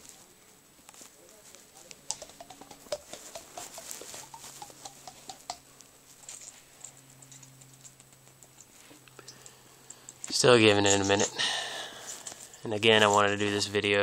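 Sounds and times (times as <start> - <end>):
faint low steady hum: 0.0 - 14.0
light clicking and tapping: 1.8 - 5.6.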